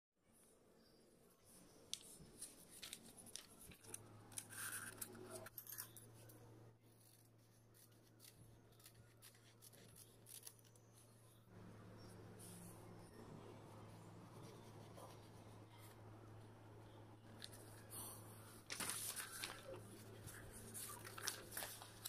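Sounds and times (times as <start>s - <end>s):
low steady hum: 0.7s - 22.0s
stiff paper rustling: 1.9s - 5.5s, 18.6s - 22.0s
scissors snipping paper: 6.9s - 10.9s, 18.7s - 22.0s.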